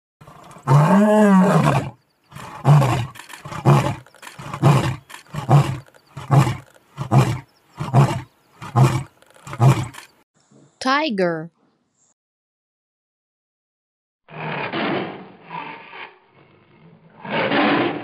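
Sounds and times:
lion roaring: 0:00.2 - 0:10.1, 0:14.3 - 0:18.0.

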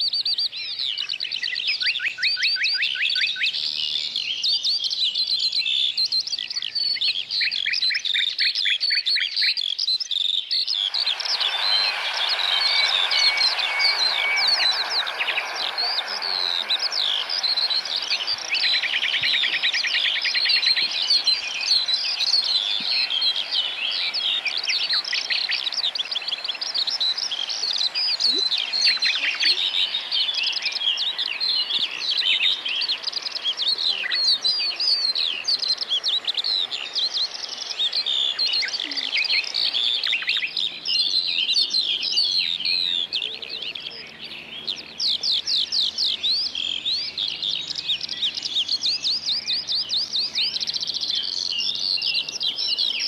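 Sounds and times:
chorus of songbirds singing: 0:00.0 - 0:53.0.

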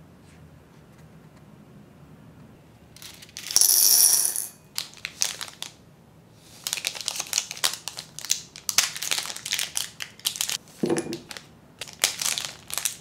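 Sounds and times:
packaging rustle: 0:04.8 - 0:05.7, 0:06.5 - 0:10.6, 0:11.2 - 0:13.0
foil wrapper crinkling: 0:04.8 - 0:05.8, 0:06.6 - 0:10.6, 0:11.2 - 0:13.0.

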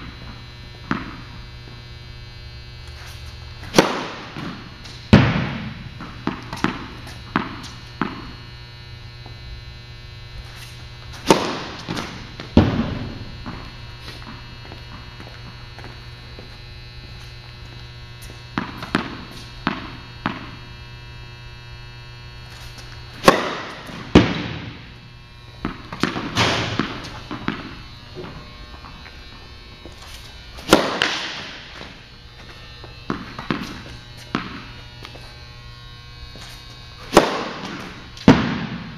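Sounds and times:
low hum: 0:00.0 - 0:38.9
ball bouncing on court: 0:00.8 - 0:01.3, 0:03.7 - 0:08.4, 0:11.2 - 0:15.9, 0:23.2 - 0:24.9, 0:25.6 - 0:29.0, 0:33.1 - 0:34.7, 0:37.1 - 0:38.9
racket striking tennis ball: 0:03.0 - 0:08.4, 0:10.5 - 0:15.0, 0:18.2 - 0:20.6, 0:22.6 - 0:25.0, 0:25.6 - 0:28.4, 0:29.9 - 0:32.0, 0:33.1 - 0:34.7, 0:36.4 - 0:38.9
ball thud: 0:03.7 - 0:08.3, 0:11.2 - 0:13.7, 0:23.2 - 0:24.9, 0:25.6 - 0:28.4, 0:30.6 - 0:31.9, 0:37.1 - 0:38.9.

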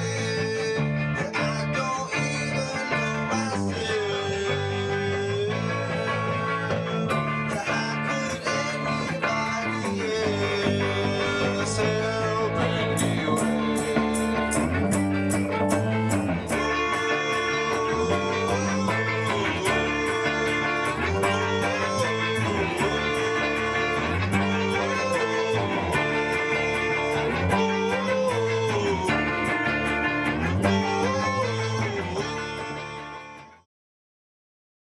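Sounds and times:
bass guitar: 0:00.0 - 0:33.6
man singing: 0:00.0 - 0:33.6
electric guitar: 0:00.0 - 0:33.7.

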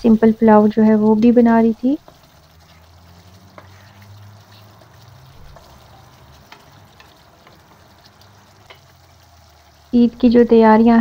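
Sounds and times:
gravy bubbling in a pan: 0:00.0 - 0:11.0
spatula stirring: 0:00.4 - 0:09.9
spatula tapping a pan: 0:02.0 - 0:09.0.

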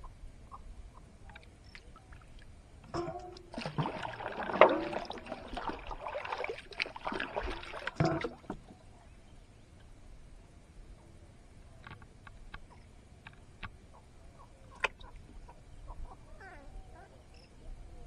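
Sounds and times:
water splashing and dripping: 0:01.7 - 0:08.6
water splash into lake: 0:03.0 - 0:08.7.

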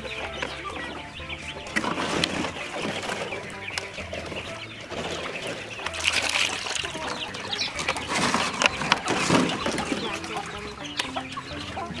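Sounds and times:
water splashing into metal basin: 0:04.9 - 0:11.4.

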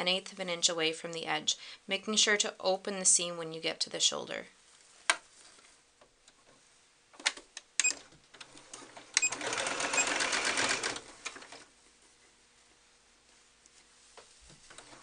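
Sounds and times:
sewing machine stitching: 0:07.8 - 0:11.7.

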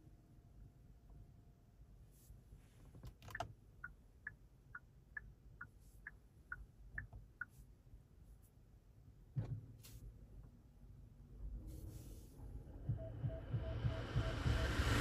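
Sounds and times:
turn signal ticking: 0:03.2 - 0:07.6, 0:12.8 - 0:15.0.

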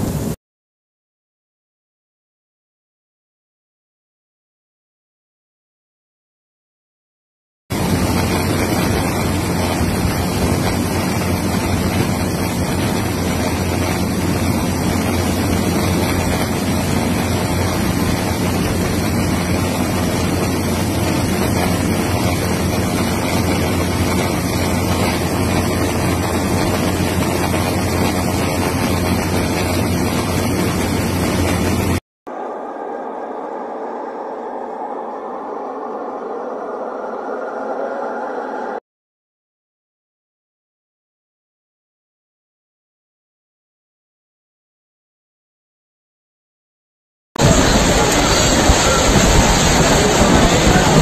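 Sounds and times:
wind buffeting microphone: 0:07.7 - 0:32.0, 0:47.4 - 0:51.0.

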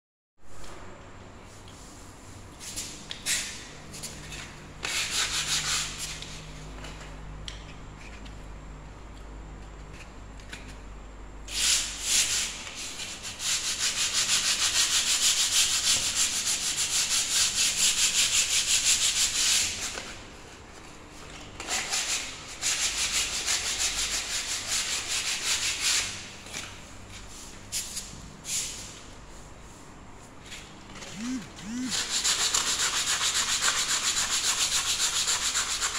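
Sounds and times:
sandpaper rubbing on wall: 0:01.8 - 0:06.6, 0:11.5 - 0:20.2, 0:21.6 - 0:35.9.

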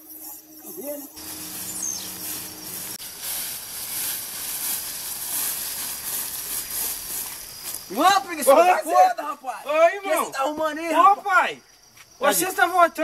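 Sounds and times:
footsteps through tall grass: 0:00.0 - 0:08.3
outdoor hiss: 0:00.0 - 0:13.0.

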